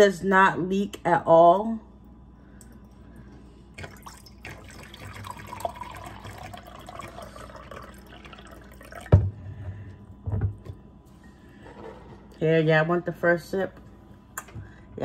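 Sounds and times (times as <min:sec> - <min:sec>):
water pouring into a mug: 0:03.8 - 0:09.2.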